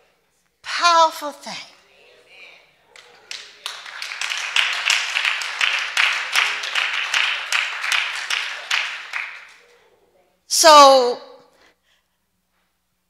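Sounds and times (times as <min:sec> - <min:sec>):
congregation applauding: 0:02.9 - 0:09.7.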